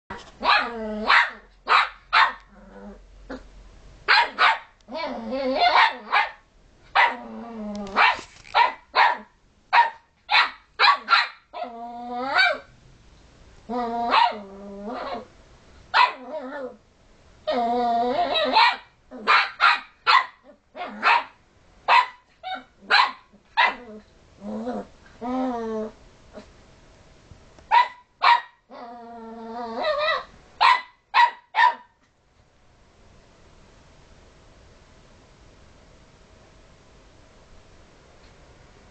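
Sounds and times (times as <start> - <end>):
puppy barking: 0.4 - 2.5, 4.1 - 4.8, 5.6 - 7.2, 7.9 - 11.7, 12.4 - 12.7, 14.1 - 14.4, 15.9 - 16.3, 18.3 - 23.9, 27.7 - 28.6, 29.8 - 32.0.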